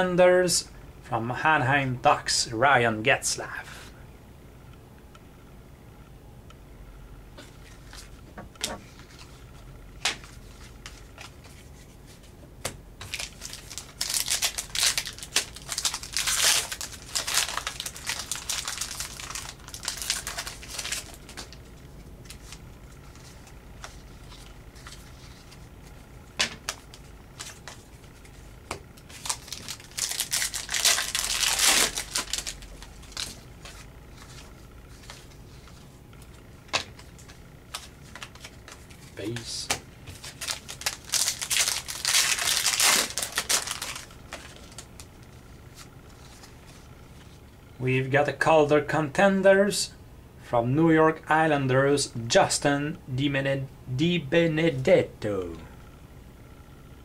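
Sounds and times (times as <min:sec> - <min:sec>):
trading cards rustling: 0:13.0 - 0:47.4.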